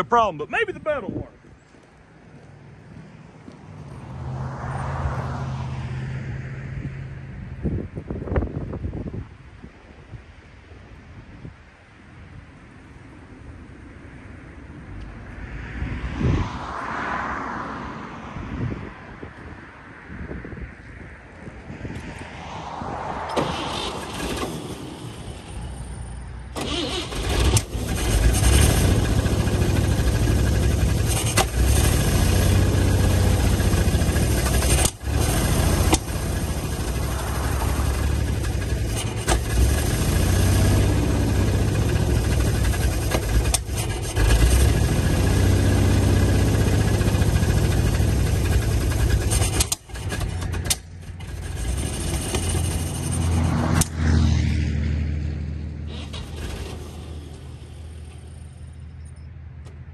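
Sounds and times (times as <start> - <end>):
truck engine cranking and running: 23.3 - 54.0, 55.9 - 59.9.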